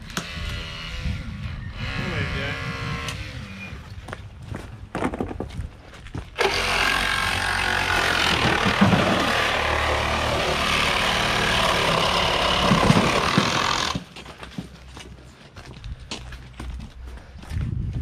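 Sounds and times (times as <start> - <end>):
power tool cutting car body: 6.4 - 14.0.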